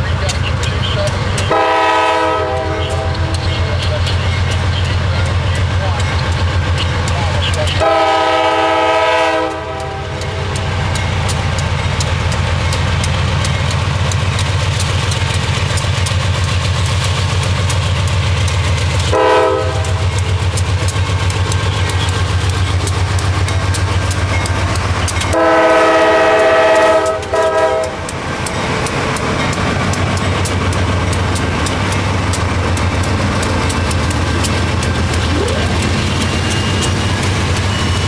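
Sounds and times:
diesel locomotive rumble: 0:00.0 - 0:38.0
train wheel clicks: 0:00.0 - 0:38.0
train air horn: 0:01.5 - 0:03.4, 0:07.8 - 0:10.2, 0:19.1 - 0:20.0, 0:25.3 - 0:28.0.

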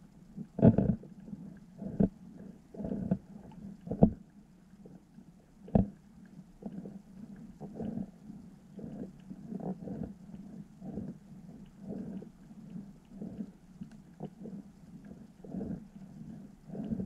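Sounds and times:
faint low hum: 0:00.0 - 0:17.0
underwater low thumps and grunts: 0:00.4 - 0:04.3, 0:04.9 - 0:06.0, 0:06.6 - 0:08.2, 0:08.8 - 0:13.6.

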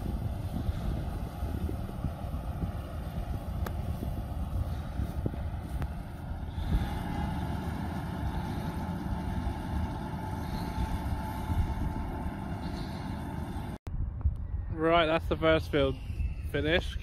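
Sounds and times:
faint machine whine: 0:00.0 - 0:13.8
tractor and baler rumbling: 0:00.0 - 0:13.8.

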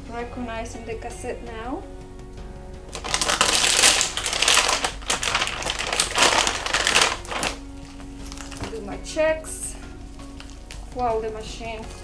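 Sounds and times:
plastic wrap crinkling: 0:02.9 - 0:08.8, 0:10.1 - 0:10.9.

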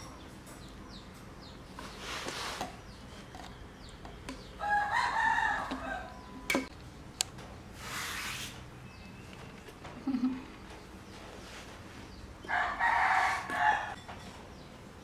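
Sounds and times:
rooster crowing: 0:04.6 - 0:06.5, 0:12.4 - 0:14.0.

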